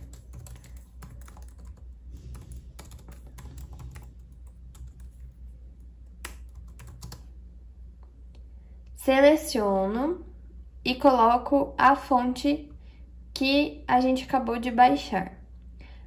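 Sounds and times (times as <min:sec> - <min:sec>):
computer keyboard typing: 0:00.0 - 0:07.3.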